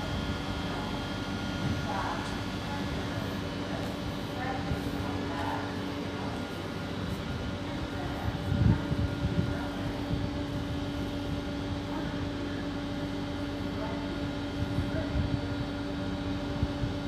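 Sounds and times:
electric train humming: 0.0s - 17.0s
wind rumbling on microphone: 4.4s - 12.4s, 14.4s - 17.0s.

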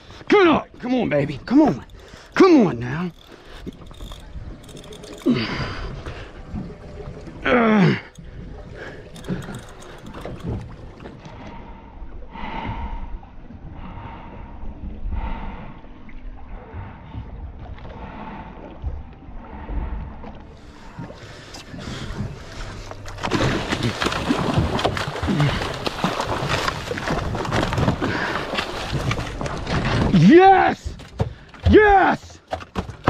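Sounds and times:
water lapping around boat: 0.0s - 33.0s
wind: 0.0s - 33.0s
fish thrashing and splashing: 0.7s - 11.3s, 22.6s - 30.1s.

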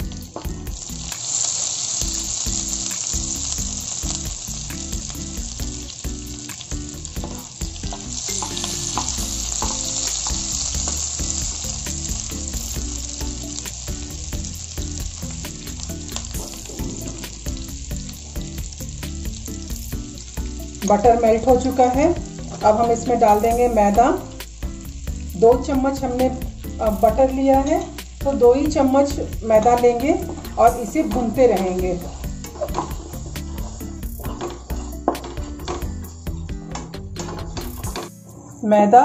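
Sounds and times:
spatula stirring in a pan: 0.0s - 38.1s
butter and garlic sizzling: 0.0s - 38.2s.

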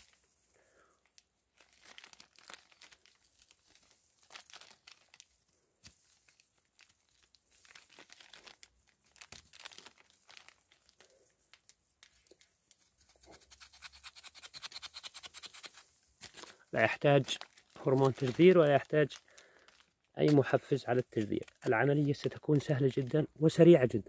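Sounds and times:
bark tearing: 13.0s - 16.6s
knife scraping bark: 13.0s - 16.6s.

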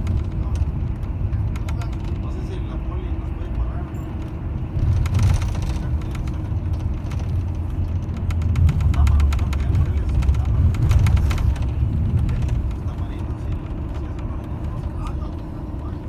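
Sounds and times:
bus engine and road rumble: 0.0s - 16.0s
light rattling clicks: 3.4s - 15.5s.

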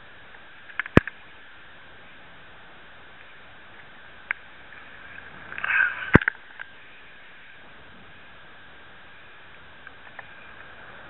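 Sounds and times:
steady faint hiss: 0.0s - 11.0s
small clicks: 0.6s - 1.2s.

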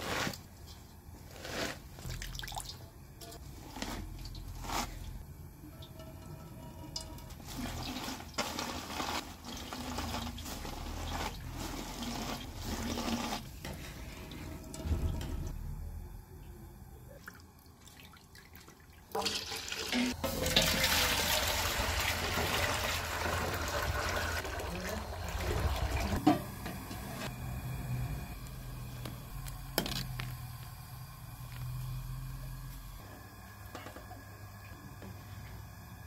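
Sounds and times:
juice pouring into metal pot: 1.4s - 14.9s, 17.2s - 26.4s.

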